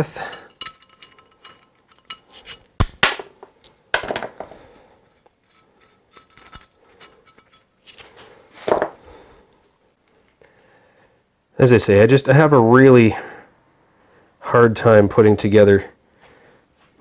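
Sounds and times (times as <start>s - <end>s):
metal bolts clinking: 0.0s - 4.5s, 5.4s - 9.0s.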